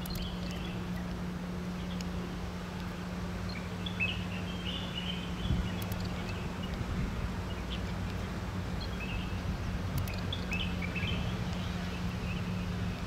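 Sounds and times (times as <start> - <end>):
bird chirps: 0.0 - 1.1, 3.5 - 6.8, 10.0 - 12.7
low mechanical hum: 0.0 - 13.0.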